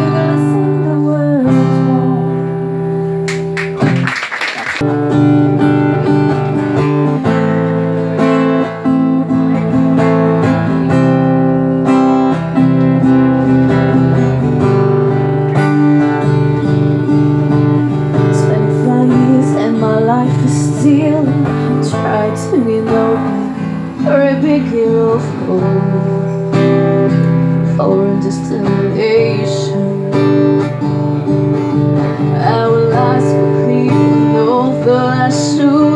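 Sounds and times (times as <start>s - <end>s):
woman singing: 0.0s - 2.9s, 18.1s - 26.8s, 27.6s - 30.9s, 32.0s - 35.9s
acoustic guitar strumming: 0.0s - 4.0s, 4.8s - 35.9s.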